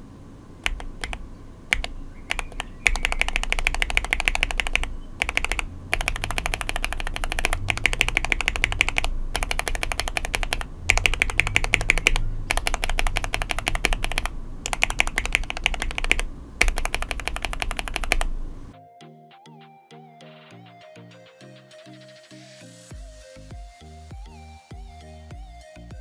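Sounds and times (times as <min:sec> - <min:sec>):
mechanical keyboard typing: 0:00.6 - 0:18.4.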